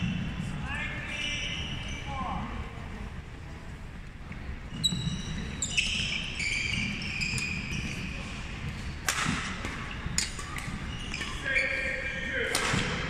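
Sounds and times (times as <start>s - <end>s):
shoes squeaking on court: 0.0s - 2.6s, 4.3s - 13.0s
racket striking shuttlecock: 9.0s - 11.4s, 12.4s - 13.0s.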